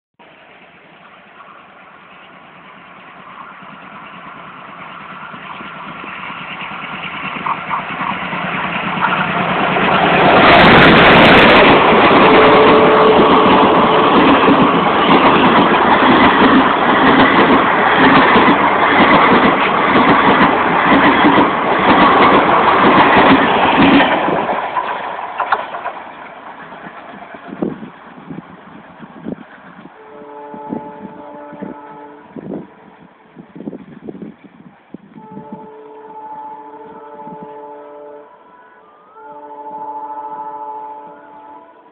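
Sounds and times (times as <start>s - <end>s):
diesel locomotive engine passing: 0.2s - 41.9s
train wheels clattering: 0.9s - 30.0s.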